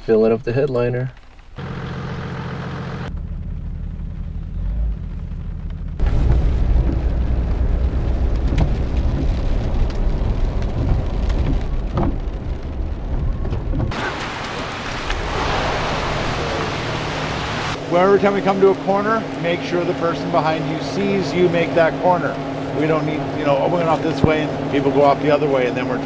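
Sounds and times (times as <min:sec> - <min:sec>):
car engine and road rumble: 0:01.0 - 0:26.0
tyres hissing on wet road: 0:13.9 - 0:25.9.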